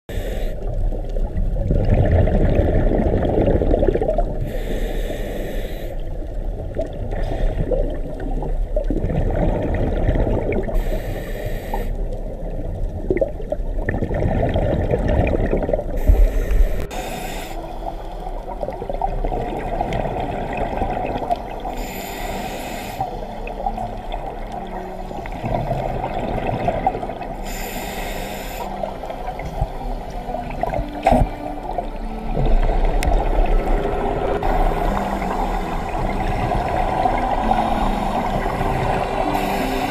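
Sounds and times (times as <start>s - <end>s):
regulator hissing inhalations: 4.5s - 6.2s, 10.8s - 12.1s, 16.0s - 18.6s, 21.7s - 23.5s, 27.4s - 29.6s, 37.4s - 39.9s.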